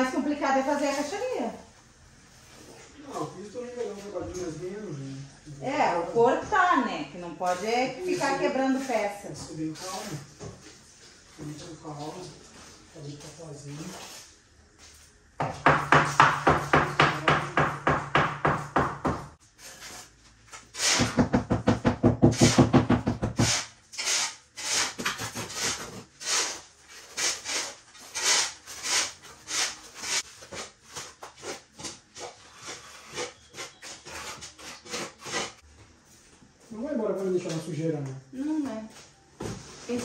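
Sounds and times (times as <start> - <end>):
trowel scraping wet concrete: 7.4 - 10.3, 23.4 - 35.6.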